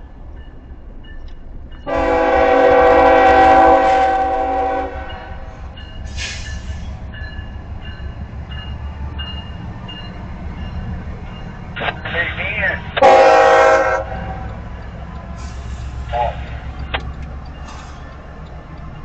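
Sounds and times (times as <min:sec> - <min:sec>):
locomotive rumble: 0:00.0 - 0:19.0
locomotive air horn chord: 0:01.9 - 0:05.6, 0:13.0 - 0:14.4, 0:15.4 - 0:16.5
short air hiss: 0:06.1 - 0:06.8.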